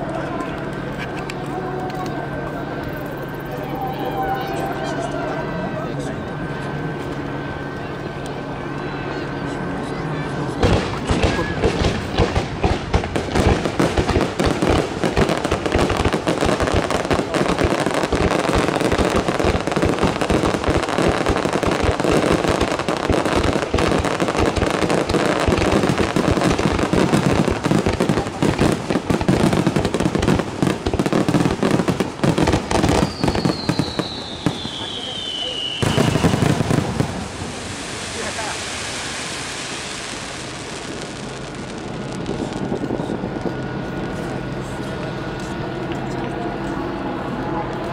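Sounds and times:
fireworks bursting: 10.6 - 45.8
whistle falling in pitch: 33.1 - 36.2.

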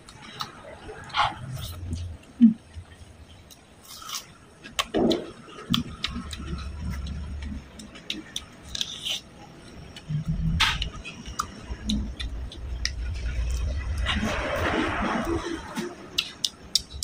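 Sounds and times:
mouth biting and chewing: 3.8 - 14.9.

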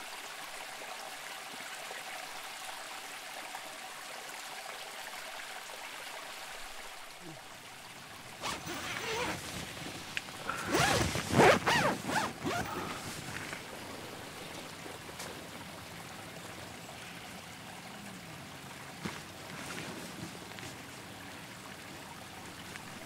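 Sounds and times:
river rushing: 8.0 - 23.0
tent zip pulled open: 8.3 - 15.4, 19.0 - 20.8.

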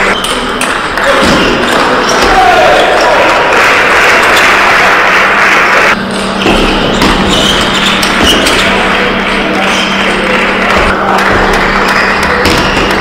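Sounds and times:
table tennis ball bouncing: 0.2 - 2.4, 10.6 - 13.0
shoe squeaks: 6.1 - 10.0.

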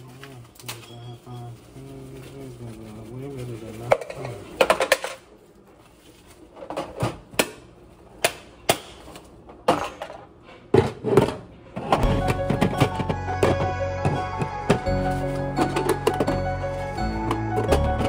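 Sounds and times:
background music: 12.0 - 18.0.

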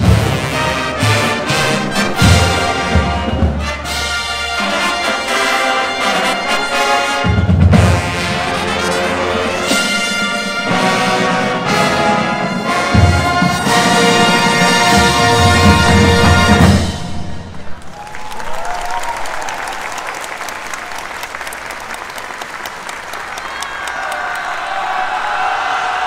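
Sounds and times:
marching band brass: 0.0 - 17.9.

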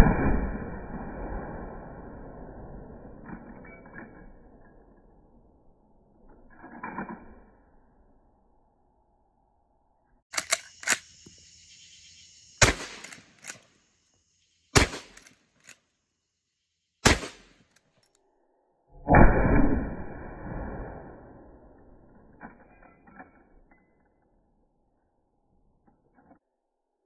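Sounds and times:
rifle lever clicks: 10.3 - 11.1
rifle shots: 12.6 - 13.6, 14.7 - 15.4, 17.0 - 17.6.

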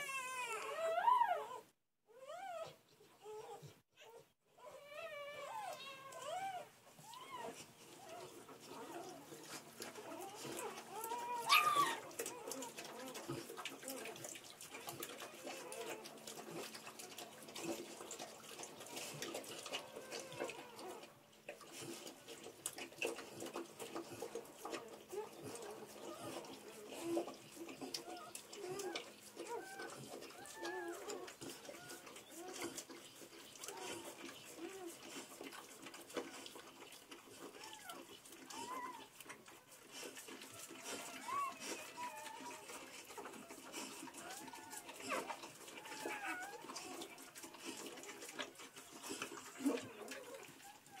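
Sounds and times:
puppy cries: 0.0 - 14.2, 15.0 - 16.7, 19.6 - 21.1, 24.6 - 32.8, 37.4 - 39.2, 40.5 - 48.7
puppies squeaking: 2.2 - 14.2, 24.8 - 35.2, 37.6 - 39.1, 40.5 - 51.0
dog licking wetly: 8.8 - 51.0.

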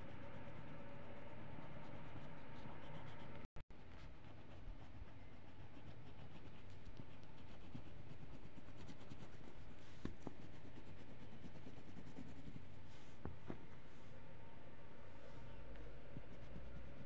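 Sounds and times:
crayon scratching on paper: 0.4 - 13.2.

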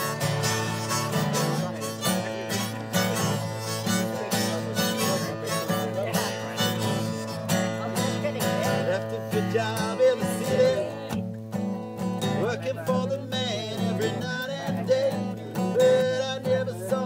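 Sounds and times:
acoustic guitar strumming: 0.0 - 17.0
held melody line: 0.0 - 17.0.

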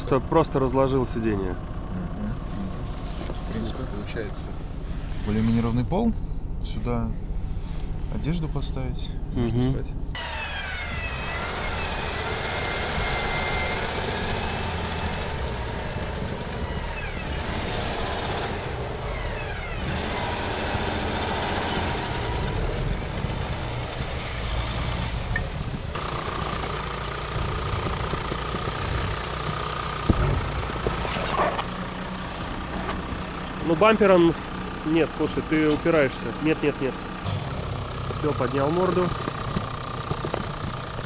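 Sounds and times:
steady whine: 9.8 - 20.0
suv engines revving under load: 10.1 - 41.0.

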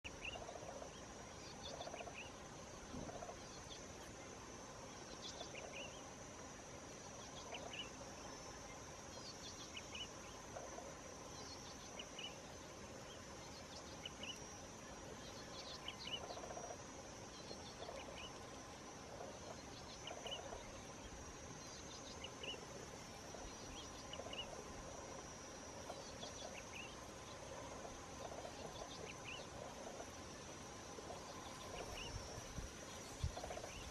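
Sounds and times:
high-pitched insect drone: 0.1 - 33.9.

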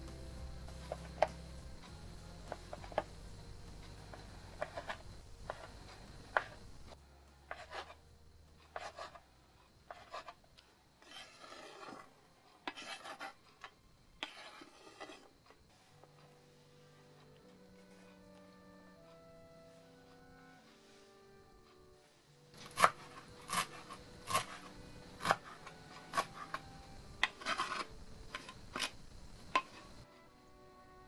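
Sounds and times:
knife scraping across board: 4.5 - 6.6, 7.5 - 8.0, 8.6 - 9.2, 9.8 - 10.4, 11.0 - 15.6, 22.6 - 26.6, 27.2 - 29.9
knife chopping cheese: 4.6 - 5.7, 7.5 - 8.0, 8.6 - 9.2, 9.9 - 10.4, 11.0 - 12.0, 12.6 - 15.3, 22.6 - 29.9.

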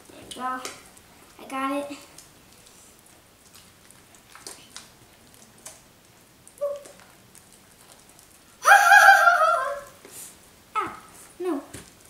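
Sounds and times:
wet squelches of slime: 0.1 - 8.6
loud high-pitched cry: 8.6 - 9.9.

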